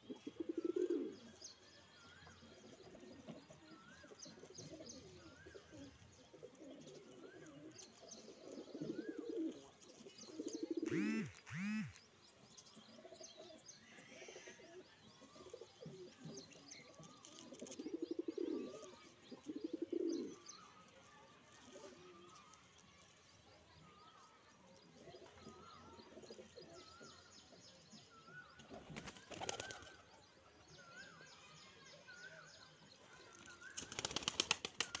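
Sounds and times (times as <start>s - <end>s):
pigeon cooing: 0.0s - 1.3s, 4.6s - 9.7s
small birds chirping: 0.0s - 35.0s
wings flapping: 10.9s - 11.9s, 28.8s - 30.0s, 33.8s - 35.0s.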